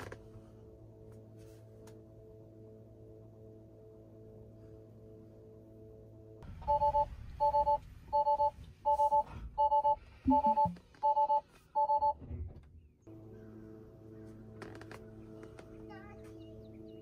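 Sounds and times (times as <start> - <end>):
two-tone alert beeps: 6.6 - 12.2.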